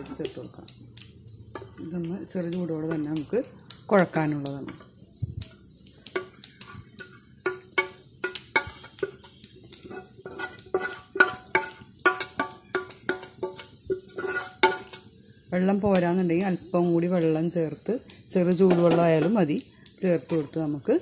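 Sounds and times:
metal pot knocking on steel bowl: 6.2 - 9.3, 10.4 - 15.0.

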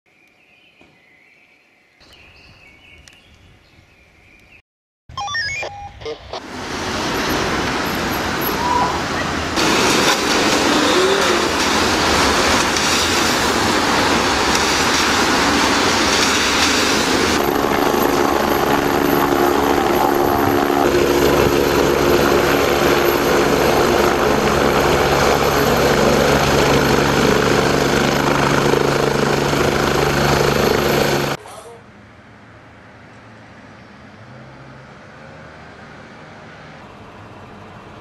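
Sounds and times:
cars driving on a wet road: 6.4 - 17.4, 32.0 - 38.0
helicopter flying close by: 6.4 - 31.4.

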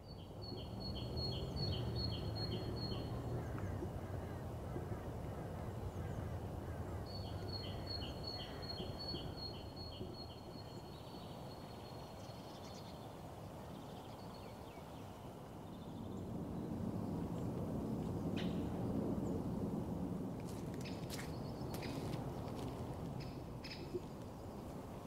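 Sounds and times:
outdoor background rumble: 0.0 - 11.3.

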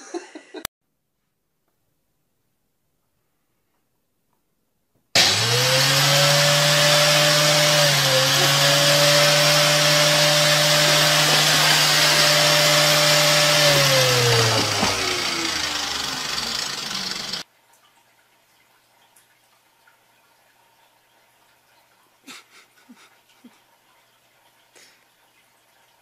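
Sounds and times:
electric motor running with hiss: 5.2 - 17.4.

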